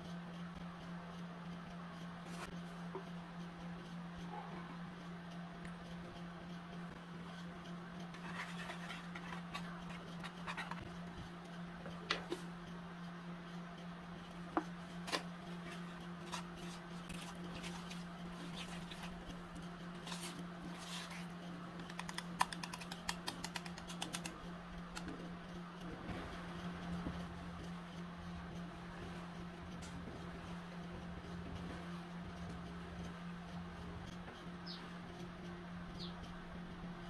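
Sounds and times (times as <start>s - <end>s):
steady low hum: 0.0s - 37.0s
whisk clicking against a bowl: 21.8s - 24.3s.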